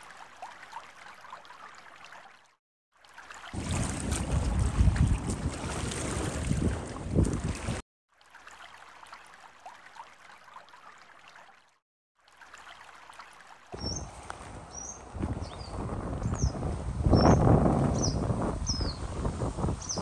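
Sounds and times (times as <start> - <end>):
wind buffeting microphone: 3.6 - 7.8, 13.8 - 20.0.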